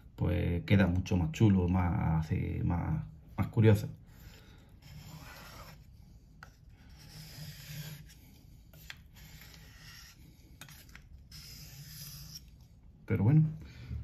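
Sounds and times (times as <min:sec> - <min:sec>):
knife scraping on sharpening stone: 0:04.8 - 0:12.7.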